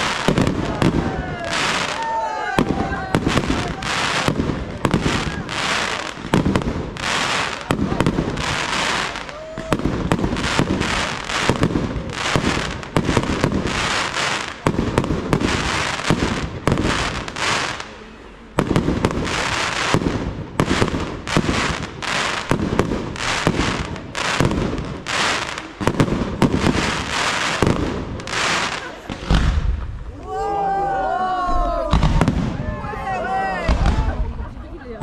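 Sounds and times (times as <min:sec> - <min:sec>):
fireworks bangs and cracks: 0:00.0 - 0:30.1, 0:31.7 - 0:35.0.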